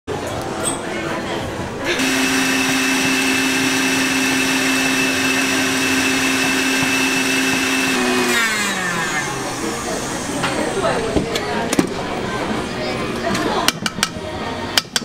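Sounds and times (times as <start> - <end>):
stand mixer motor whirring: 2.0 - 10.4.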